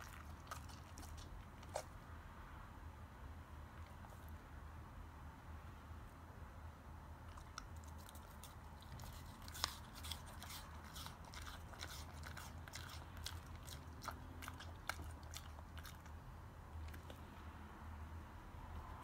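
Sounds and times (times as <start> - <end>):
dog crunching apple: 0.0 - 1.9, 7.3 - 16.2.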